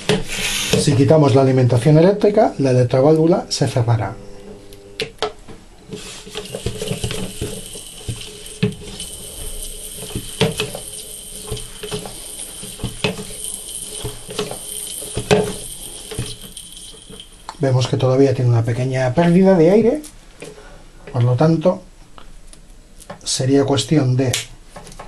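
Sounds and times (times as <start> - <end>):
air hissing through valve: 0.0 - 1.1, 5.8 - 18.5.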